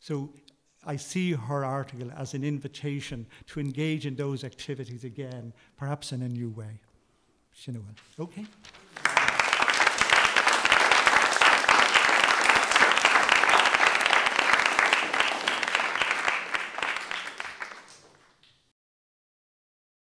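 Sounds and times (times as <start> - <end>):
audience applauding: 8.4 - 18.5.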